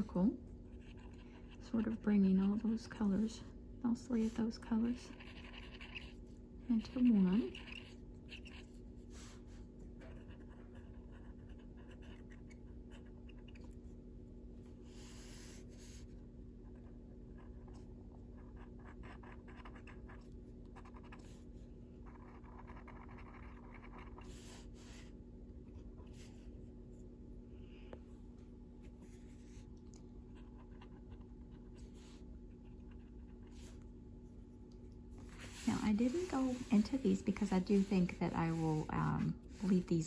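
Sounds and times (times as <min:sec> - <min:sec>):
steady low hum: 0:00.0 - 0:40.0
pencil scratching on paper: 0:04.3 - 0:08.7, 0:10.0 - 0:13.5, 0:18.4 - 0:25.1, 0:35.2 - 0:40.0.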